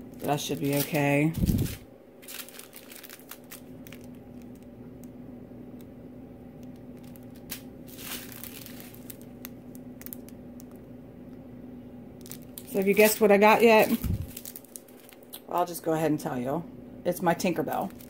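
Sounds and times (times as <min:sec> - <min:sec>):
plastic bags crinkling and clicking: 0:00.0 - 0:05.2, 0:06.6 - 0:10.9, 0:12.2 - 0:15.4, 0:17.4 - 0:18.0
steady low hum: 0:00.0 - 0:18.0.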